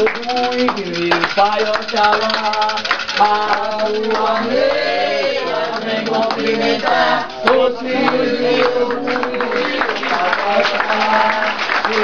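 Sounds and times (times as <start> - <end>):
people singing a chant: 2.1 - 12.0.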